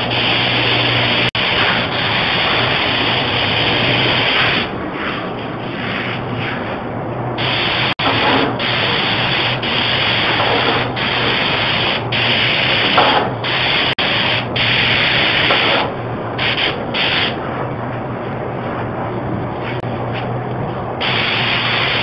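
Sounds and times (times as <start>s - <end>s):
spray gun hissing: 0.0s - 4.7s, 7.4s - 17.4s, 21.0s - 22.0s
steady low hum: 0.0s - 22.0s.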